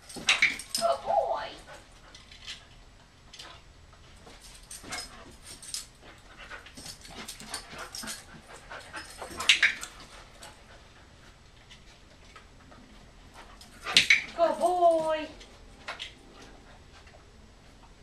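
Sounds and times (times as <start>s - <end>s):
dog panting: 1.6s - 3.6s, 4.7s - 15.0s.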